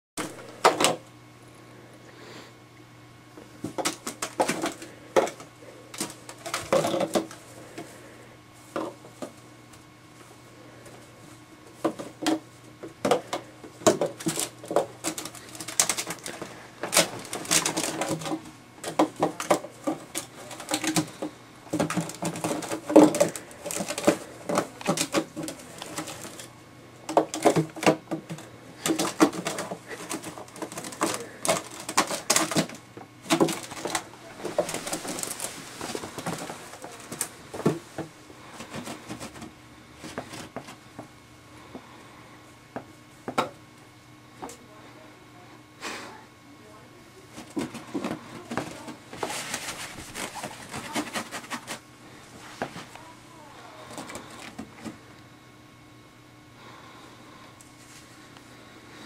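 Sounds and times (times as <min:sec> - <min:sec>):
plastic bottles crinkling and clattering: 0:00.2 - 0:01.0, 0:03.6 - 0:08.0, 0:08.7 - 0:09.4, 0:11.6 - 0:40.8, 0:47.3 - 0:51.9, 0:53.8 - 0:55.0.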